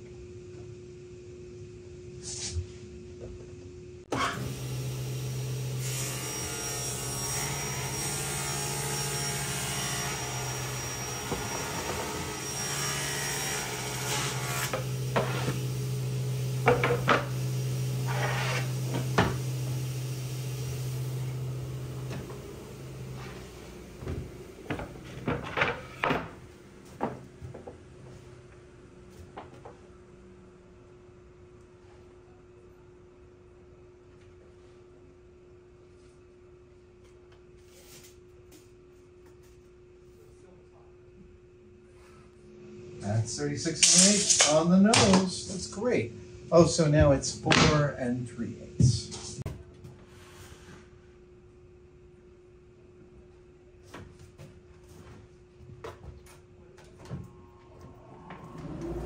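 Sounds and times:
table saw cutting plywood: 4.1 - 26.4, 57.9 - 59.0.

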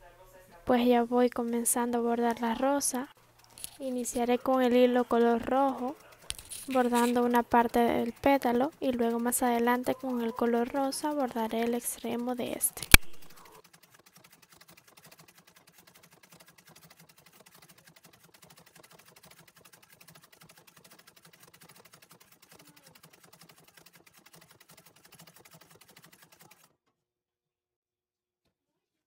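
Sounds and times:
sewing machine needle ticking: 3.4 - 26.7.

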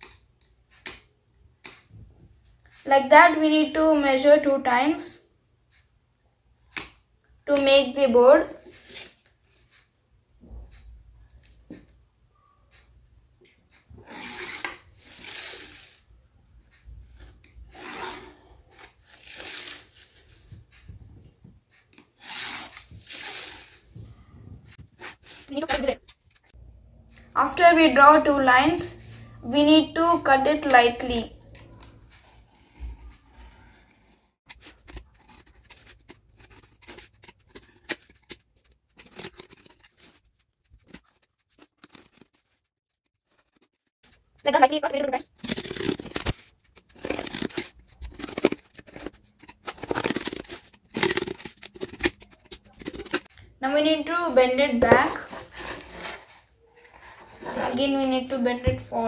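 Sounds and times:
knife scoring cardboard: 14.0 - 16.0, 17.1 - 20.8, 22.2 - 23.8, 32.1 - 42.6, 45.4 - 53.3, 54.8 - 58.1
pencil scratching along ruler: 14.0 - 16.0, 17.1 - 20.5, 22.2 - 23.8, 29.0 - 42.6, 43.3 - 44.7, 45.3 - 53.3, 55.0 - 58.3.

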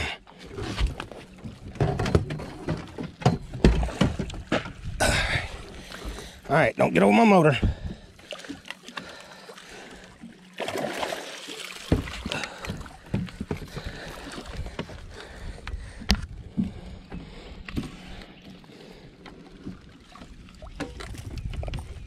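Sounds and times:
gear knocking against boat: 0.8 - 5.0, 11.9 - 18.2
water splashing: 7.5 - 16.0, 17.8 - 22.0.

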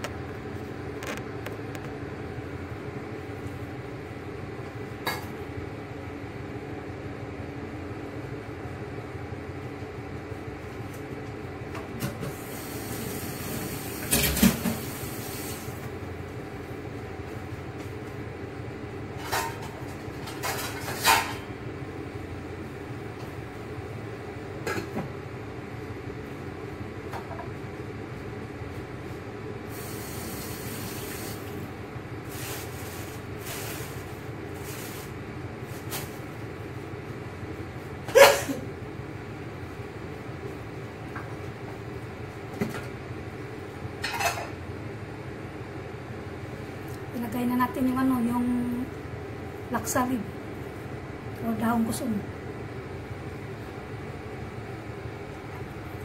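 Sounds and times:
steam hissing: 12.3 - 15.8, 29.7 - 31.6
pot simmering: 29.6 - 35.5.

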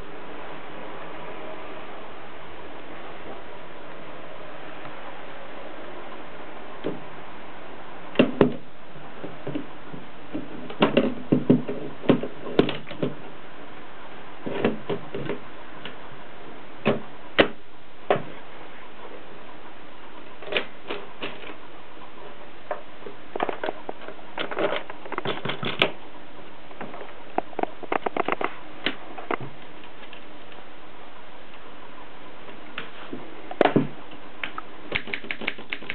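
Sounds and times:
manual typewriter clacking: 34.9 - 35.9.

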